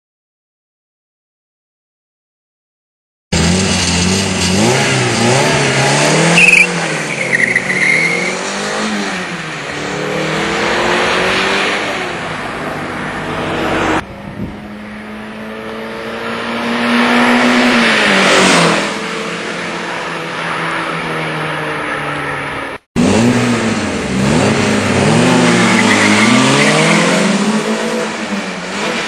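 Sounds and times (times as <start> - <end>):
car passing by: 3.4 - 22.8
car engine revving and accelerating: 3.4 - 29.0
tyre squeal: 5.6 - 8.4, 25.4 - 27.1.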